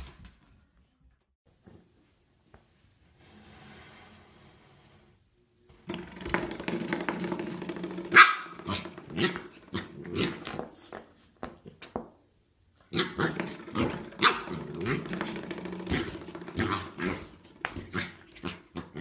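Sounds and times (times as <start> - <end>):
puppy barking and growling: 7.9 - 10.7, 12.8 - 19.0.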